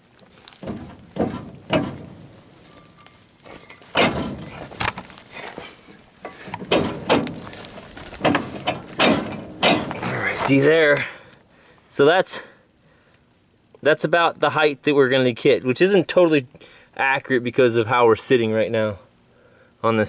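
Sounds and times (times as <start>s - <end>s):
footsteps crunching on gravel: 0.0s - 11.0s.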